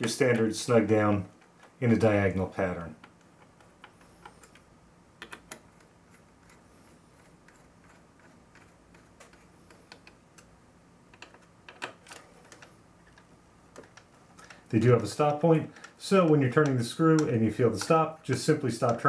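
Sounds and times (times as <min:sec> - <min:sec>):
small clicks of screws turning: 0:07.5 - 0:10.5.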